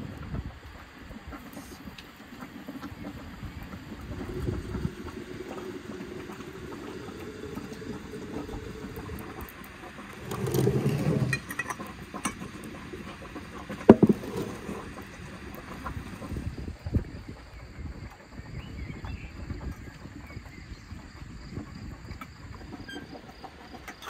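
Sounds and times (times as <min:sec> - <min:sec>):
hot water pouring into jar: 0:02.9 - 0:16.8.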